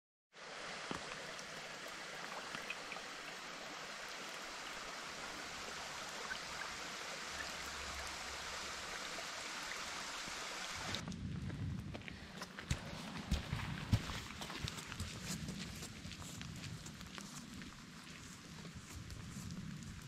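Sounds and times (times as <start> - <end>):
creek water rushing: 0.4 - 11.0
faint water drips: 0.5 - 11.2.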